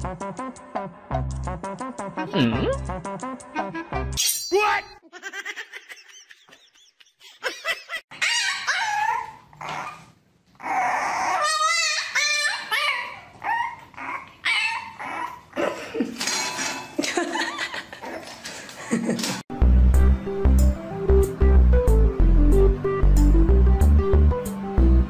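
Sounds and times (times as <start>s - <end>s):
puppy yipping and whining: 8.1s - 15.5s.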